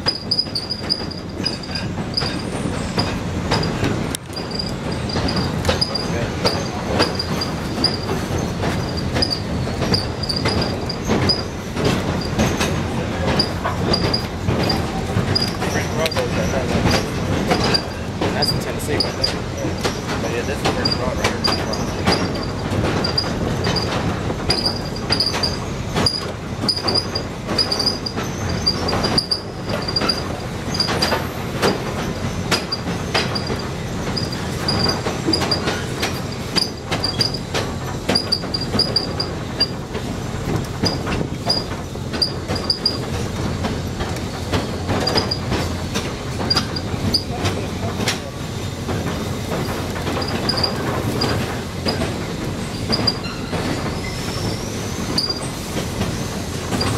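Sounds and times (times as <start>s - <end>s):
high-pitched squeaks: 0.0s - 11.6s
train car rumble: 0.0s - 56.9s
wheels clicking on rails: 0.0s - 56.9s.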